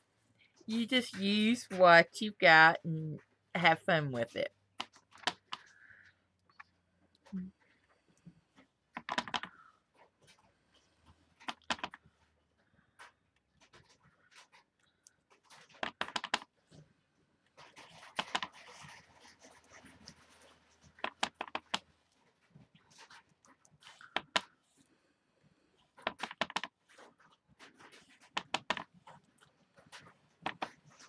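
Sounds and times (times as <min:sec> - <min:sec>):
soft rustling: 0:16.5 - 0:26.0.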